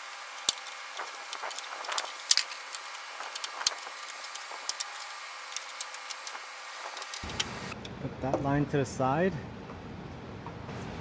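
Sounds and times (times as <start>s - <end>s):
pry tool clicking plastic clips: 0.4s - 6.4s.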